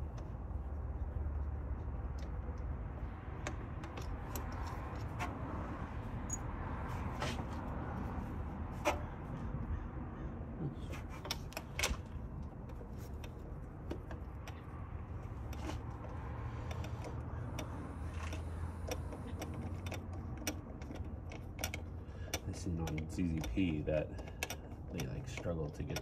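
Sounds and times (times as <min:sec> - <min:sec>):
light clicks and clinks of hardware: 0:11.2 - 0:26.0.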